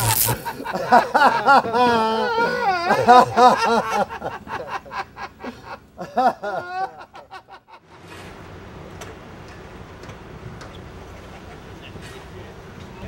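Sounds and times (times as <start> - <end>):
man laughing high-pitched: 0.0 - 7.7.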